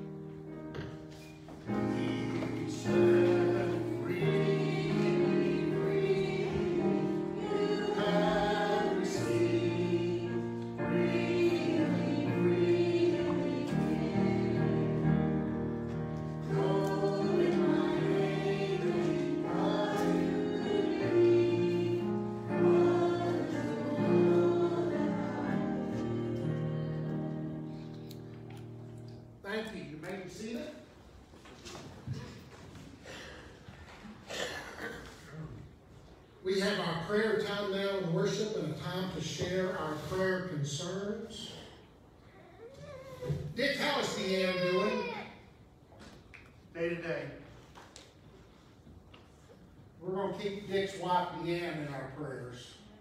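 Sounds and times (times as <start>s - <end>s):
piano accompaniment: 0.0s - 30.3s
voices singing a hymn: 0.8s - 28.4s.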